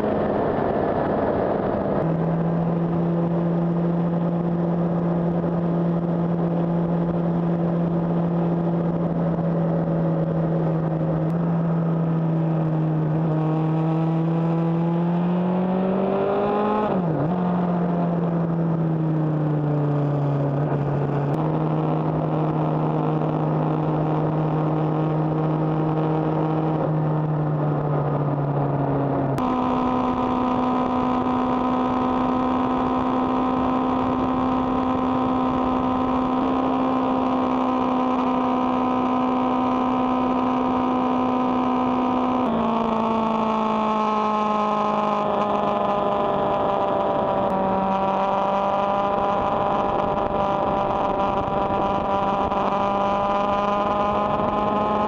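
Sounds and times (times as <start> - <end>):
wind rush: 0.0 - 14.1, 44.4 - 55.0
motorcycle engine cruising: 0.0 - 55.0.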